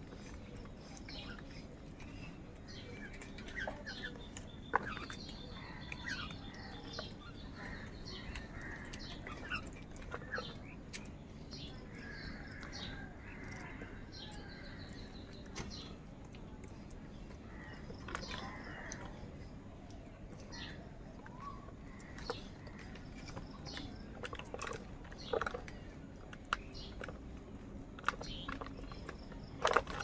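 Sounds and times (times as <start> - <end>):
crows chirping and calling: 0.2 - 10.9, 11.6 - 16.0, 17.4 - 19.4.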